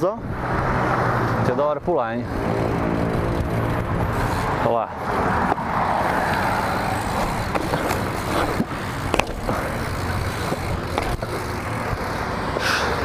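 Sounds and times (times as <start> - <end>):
bike rolling over concrete: 2.0 - 13.0
sharp clicks and knocks from bike: 5.4 - 13.0.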